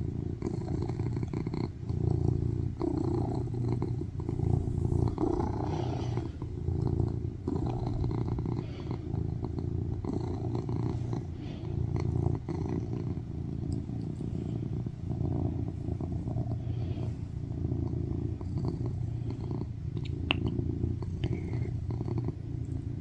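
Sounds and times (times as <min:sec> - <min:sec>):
cat purring loudly: 0:00.0 - 0:23.0.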